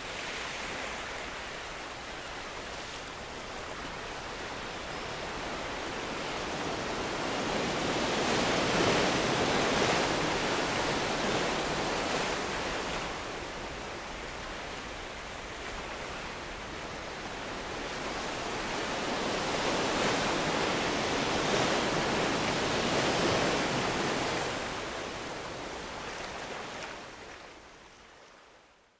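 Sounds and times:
ocean waves breaking: 5.2 - 27.4.

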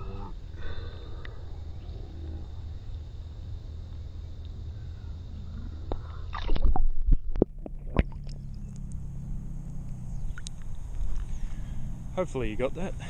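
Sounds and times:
muffled underwater rumble: 4.7 - 13.0
water splashing and sloshing: 6.3 - 8.5.

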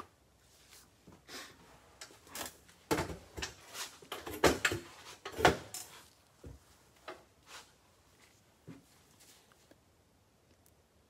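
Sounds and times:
objects knocking and thudding: 2.3 - 7.3.

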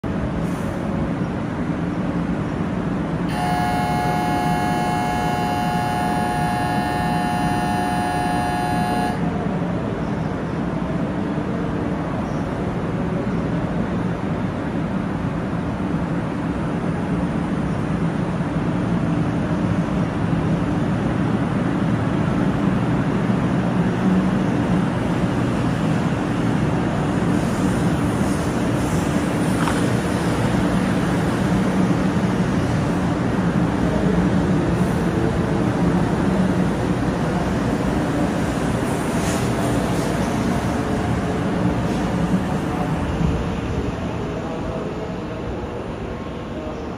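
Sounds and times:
train running noise: 0.0 - 46.9
train humming: 0.1 - 46.9
electronic departure buzzer: 3.3 - 9.4.

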